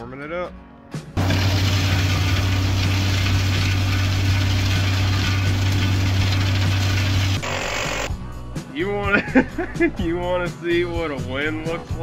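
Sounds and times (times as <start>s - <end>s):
blower and engine hum: 1.2s - 8.1s.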